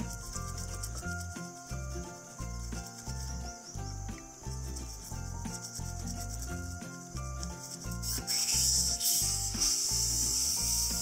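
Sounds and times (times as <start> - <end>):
background music: 0.0 - 11.0
air blow gun hissing: 7.6 - 11.0
toothbrush scrubbing metal screen: 7.6 - 11.0.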